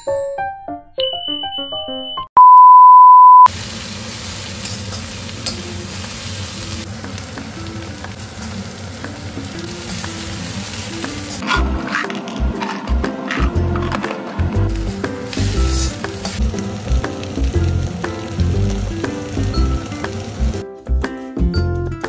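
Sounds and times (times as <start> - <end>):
electronic beep: 1.0 - 3.5
onions sizzling in a pan: 3.5 - 12.0, 12.6 - 20.6.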